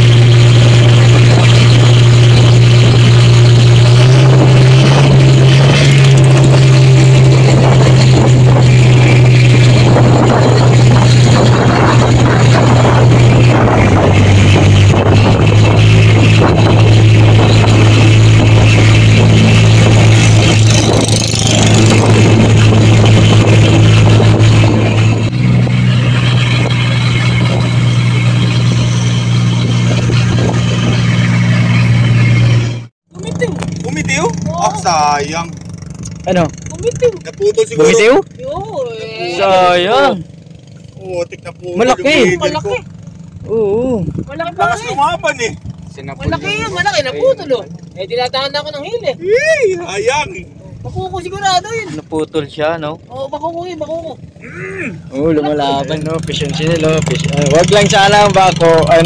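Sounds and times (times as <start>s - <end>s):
wind and water rushing: 0.0s - 31.6s
boat engine droning: 0.0s - 59.0s.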